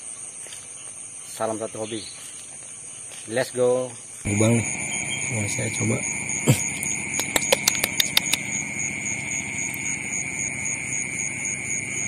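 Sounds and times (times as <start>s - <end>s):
night insects chorus: 0.0s - 12.0s
sharp clicks: 6.6s - 8.6s.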